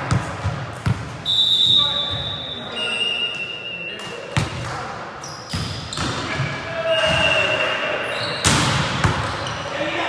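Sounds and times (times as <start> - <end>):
sneakers squeaking on hardwood: 5.2 - 9.7
volleyball struck hard: 8.4 - 9.4.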